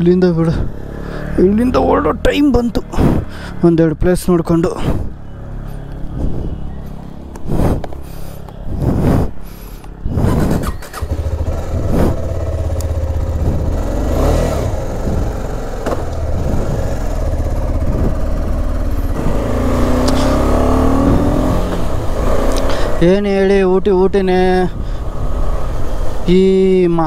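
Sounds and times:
motorcycle engine revving pulling away: 0.5 - 3.6, 10.1 - 23.0
motorcycle engine starting and idling: 9.8 - 23.0.

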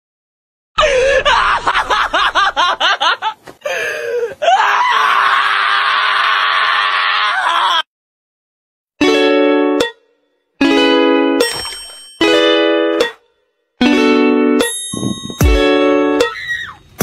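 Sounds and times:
high-pitched screaming: 16.2 - 16.9.

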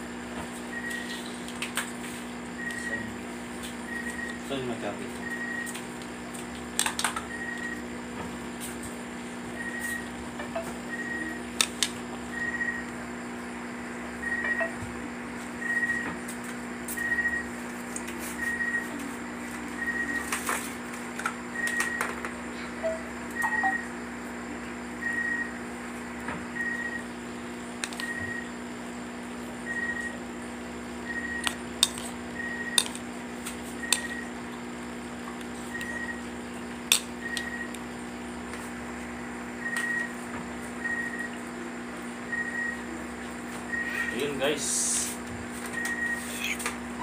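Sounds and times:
steady low hum: 0.0 - 47.0
short high beep: 22.8 - 23.9.

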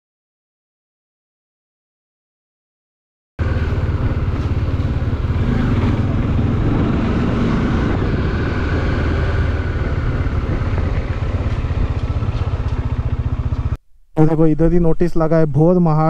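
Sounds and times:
motorcycle engine running: 3.4 - 13.8
road and wind noise: 3.4 - 16.0.

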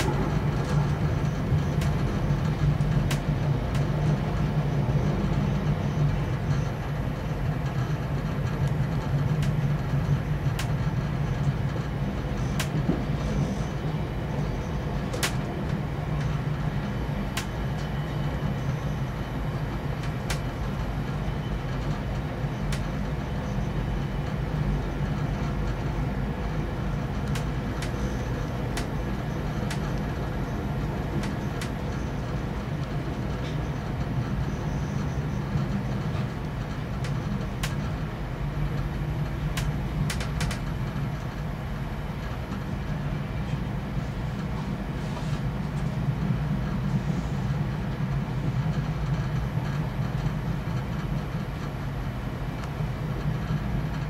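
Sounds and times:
freight train passing: 0.0 - 54.0
train car rumbling: 0.0 - 54.0
sharp clicks: 15.1 - 15.4.

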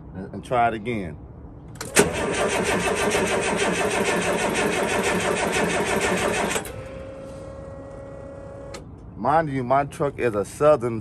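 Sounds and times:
diesel engine starter cranking: 1.8 - 8.8.

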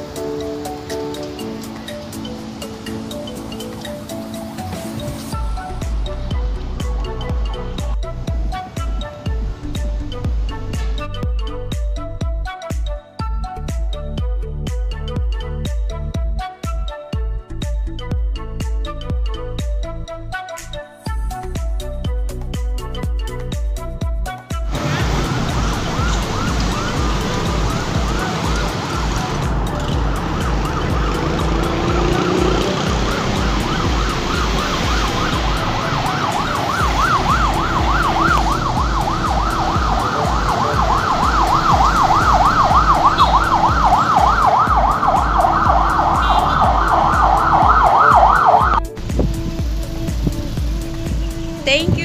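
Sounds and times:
heavy city traffic hum: 0.0 - 12.2, 24.7 - 52.0
emergency siren yelping: 24.7 - 48.9.

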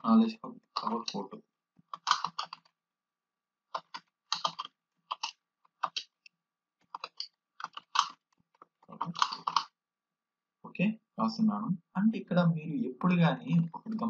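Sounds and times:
keyboard typing: 0.6 - 1.2, 1.8 - 2.7, 3.7 - 6.2, 6.8 - 9.7.

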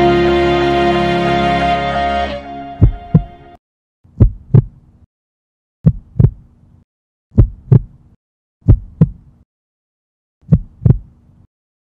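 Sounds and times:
heartbeat thumps: 2.8 - 3.4, 4.1 - 4.8, 5.8 - 6.5, 7.3 - 8.0, 8.6 - 9.3, 10.4 - 11.1.

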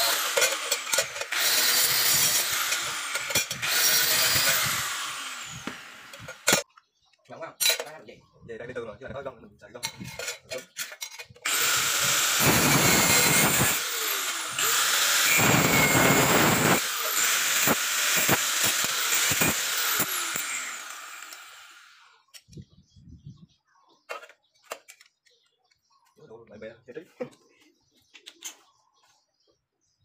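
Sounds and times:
angle grinder grinding steel: 0.0 - 6.6, 10.2 - 22.2.

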